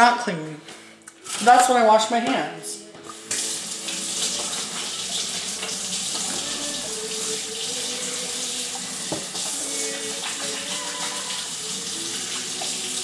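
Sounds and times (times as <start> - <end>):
tap water running into sink: 3.0 - 13.0
hands washing under water: 3.1 - 13.0.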